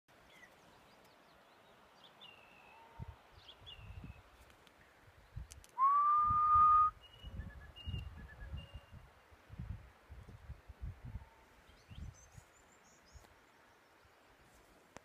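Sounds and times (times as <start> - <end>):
long whistled note: 5.8 - 7.6.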